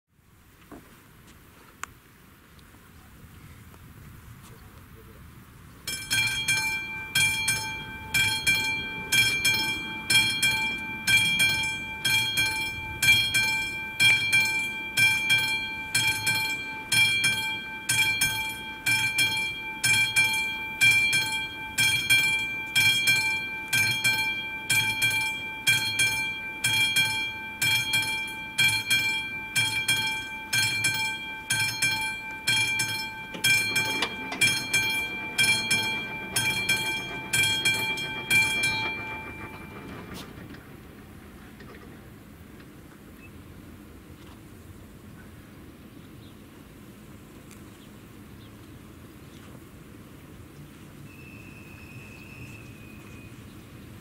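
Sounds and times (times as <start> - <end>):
level crossing warning bell: 5.8 - 41.0.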